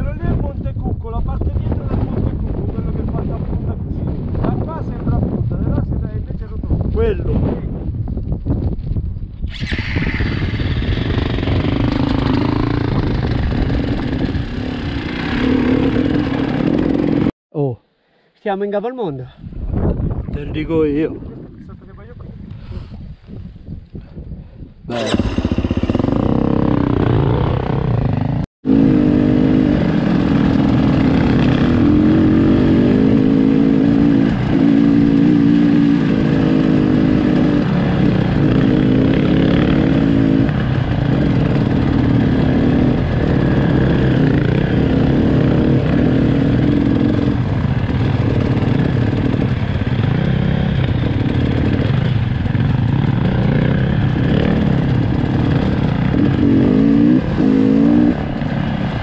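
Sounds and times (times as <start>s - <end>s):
motorcycle engine revving: 9.5s - 17.4s, 24.9s - 59.0s.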